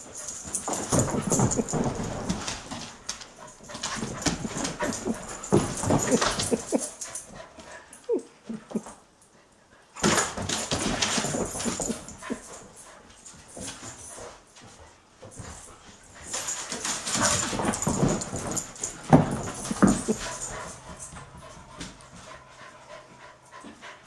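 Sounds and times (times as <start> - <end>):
paws scrabbling on floor: 0.0 - 9.0, 10.0 - 24.0
puppy whining: 4.0 - 7.0, 7.9 - 9.0, 19.4 - 20.8.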